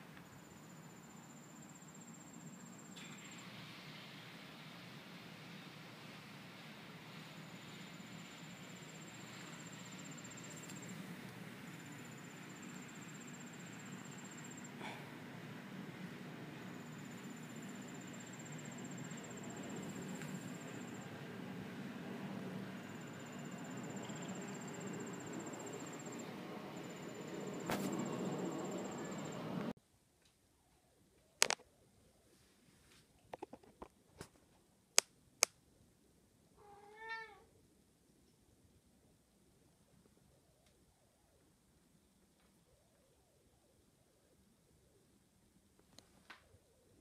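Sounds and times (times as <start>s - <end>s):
insects trilling: 8.0s - 14.9s, 16.5s - 21.2s, 22.7s - 29.5s.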